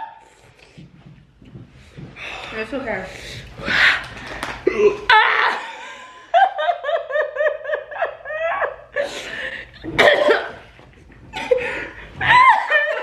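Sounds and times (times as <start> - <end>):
breathy blows of air: 0.2 - 4.9.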